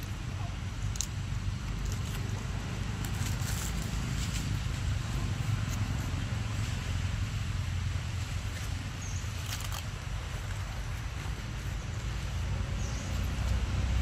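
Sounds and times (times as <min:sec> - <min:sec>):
faint crackles and scrapes: 0:00.8 - 0:07.0, 0:08.0 - 0:13.6.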